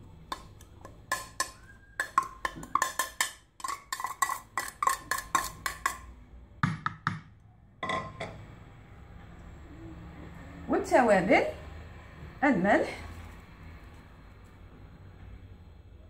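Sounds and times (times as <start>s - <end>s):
plastic bowl tapping: 0.3s - 3.4s.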